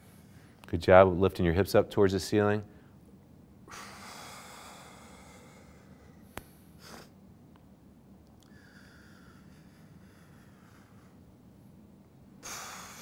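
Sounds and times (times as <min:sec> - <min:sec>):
man breathing with effort: 0:00.0 - 0:00.6, 0:03.7 - 0:07.2, 0:08.4 - 0:11.4, 0:12.4 - 0:13.0.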